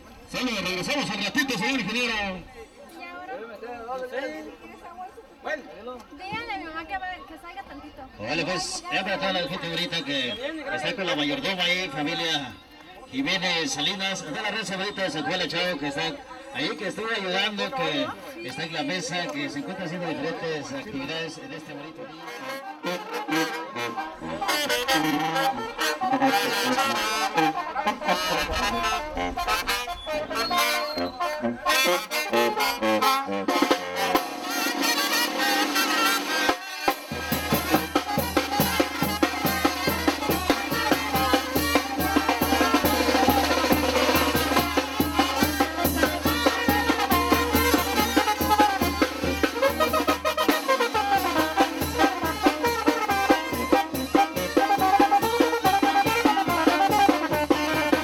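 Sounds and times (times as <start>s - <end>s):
street brass band playing: 0.0s - 3.4s, 4.3s - 58.0s
deep bass line: 27.9s - 31.8s.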